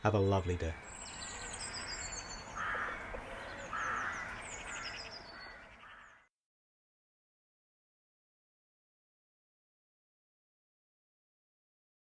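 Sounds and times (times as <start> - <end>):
small birds chirping: 0.0 - 6.3
lower bird calls: 0.5 - 6.3.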